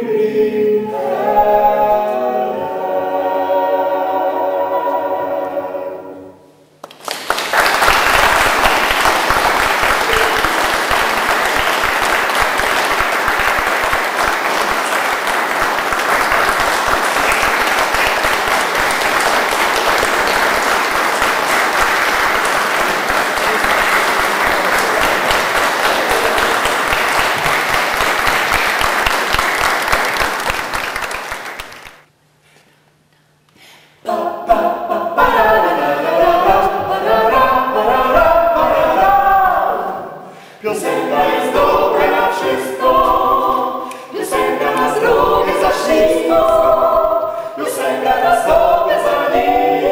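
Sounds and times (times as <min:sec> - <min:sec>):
vocal ensemble singing a cappella: 0:00.0 - 0:06.5, 0:34.0 - 0:49.9
audience applauding: 0:06.8 - 0:32.1.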